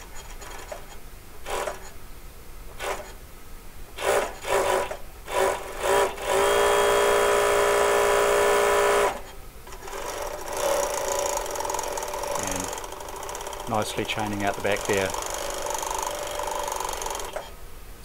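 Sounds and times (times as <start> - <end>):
industrial sewing machine running: 4.0 - 17.5.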